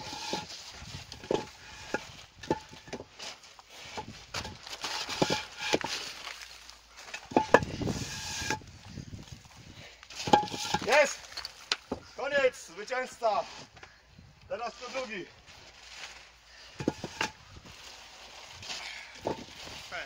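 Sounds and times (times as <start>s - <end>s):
masonry blocks knocking: 1.1s - 3.1s, 4.0s - 6.0s, 7.1s - 8.6s, 10.2s - 12.1s, 16.7s - 17.4s, 19.2s - 19.5s.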